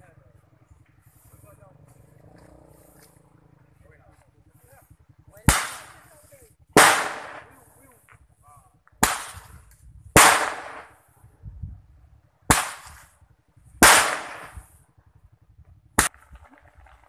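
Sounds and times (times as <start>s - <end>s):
loud firecracker bangs echoing: 5.4s - 7.7s, 9.0s - 11.1s, 12.5s - 13.2s, 13.8s - 14.7s.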